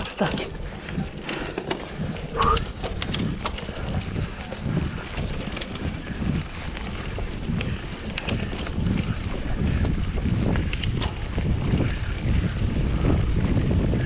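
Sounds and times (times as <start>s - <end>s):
bike clicking and rattling: 0.0s - 14.0s
tyres rumbling over dirt: 0.0s - 14.0s
wind on microphone: 0.0s - 14.0s.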